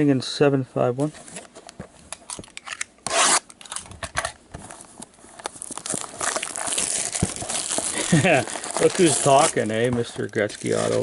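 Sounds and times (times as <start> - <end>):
cardboard rubbing and scraping: 3.1 - 3.4.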